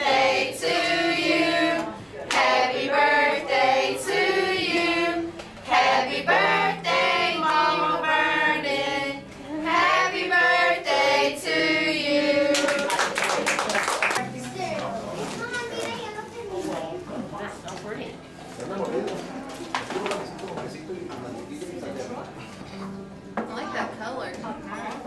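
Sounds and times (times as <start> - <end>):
women singing together: 0.0 - 13.2.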